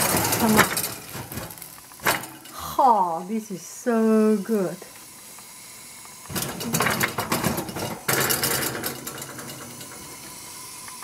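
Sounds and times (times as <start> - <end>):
oven rack sliding on rails: 0.0 - 2.6, 6.1 - 11.0.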